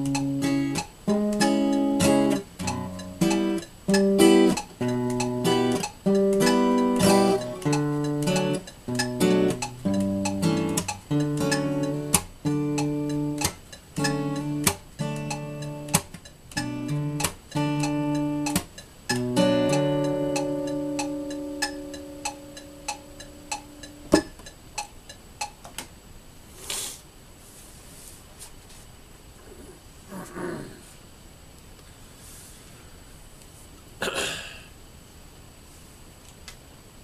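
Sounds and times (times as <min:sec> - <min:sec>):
acoustic guitar chords: 0:00.0 - 0:24.9
sharp percussive clicks: 0:00.0 - 0:25.9.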